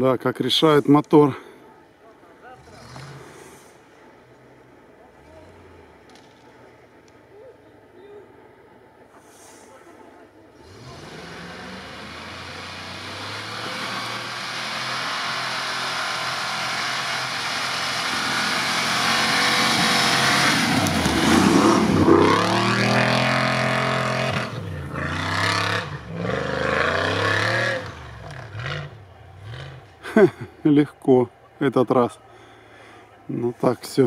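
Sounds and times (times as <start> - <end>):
car engine pulling under load: 10.6 - 30.4
tyres churning through snow: 10.6 - 30.6.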